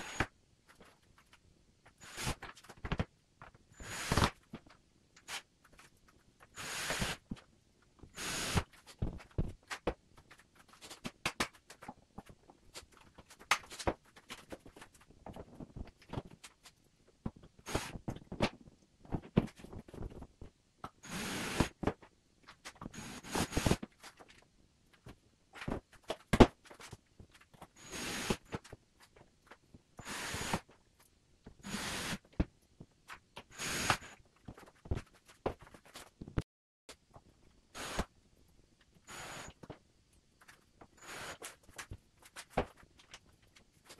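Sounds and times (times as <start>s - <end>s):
power tool whirring: 30.0s - 30.6s, 31.6s - 32.2s.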